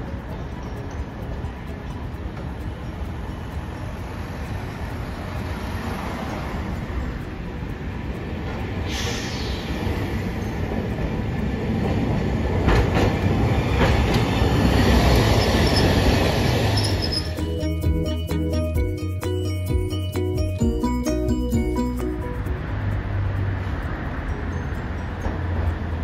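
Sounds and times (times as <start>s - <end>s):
streetcar wheels rumbling: 0.0s - 26.0s
clacks over rail joints: 10.6s - 17.3s
faint high wheel squeal: 15.2s - 17.4s.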